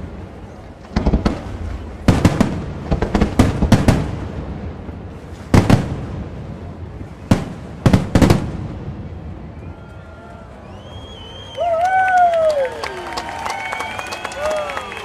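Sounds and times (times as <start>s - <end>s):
low rolling rumble: 0.0s - 11.6s
firework shells bursting: 0.8s - 4.2s.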